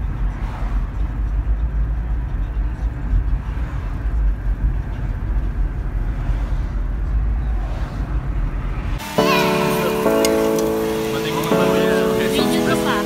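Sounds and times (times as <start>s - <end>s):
car road rumble: 0.0s - 9.0s.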